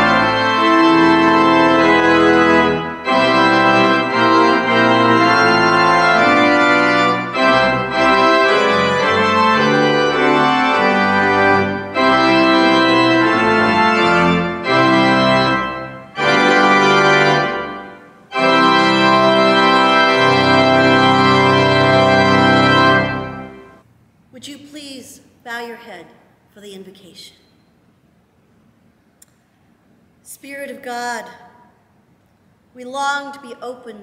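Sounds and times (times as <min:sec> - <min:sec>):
pipe organ playing chords: 0:00.0 - 0:23.8.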